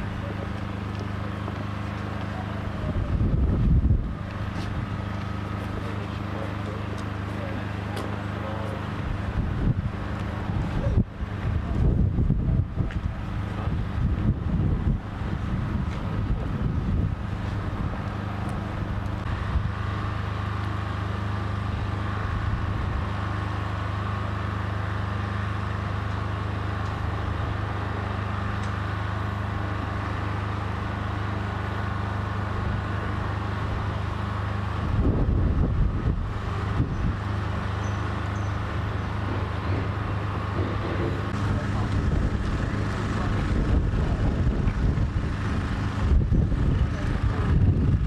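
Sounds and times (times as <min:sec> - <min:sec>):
diesel lorry engine idling: 0:00.0 - 0:48.0
wind buffeting microphone: 0:02.7 - 0:05.6, 0:08.9 - 0:19.9, 0:34.8 - 0:37.4, 0:38.7 - 0:48.0.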